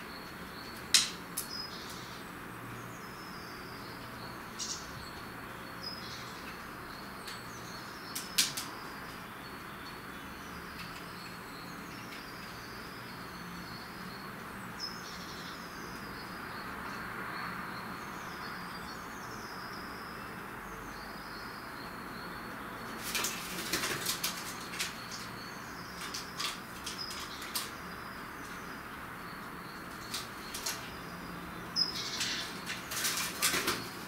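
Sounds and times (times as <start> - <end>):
small birds chirping: 0.0 - 34.0
steady outdoor hum: 0.0 - 34.0.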